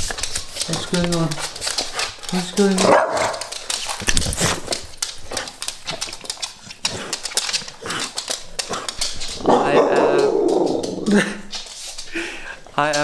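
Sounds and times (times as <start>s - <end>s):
dog claws clicking on floor: 0.0s - 13.0s
small dog sounds: 7.8s - 11.3s.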